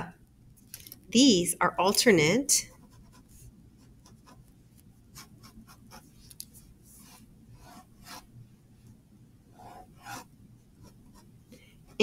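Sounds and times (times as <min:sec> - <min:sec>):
pen scratching on paper: 0:02.7 - 0:08.3, 0:09.5 - 0:11.3.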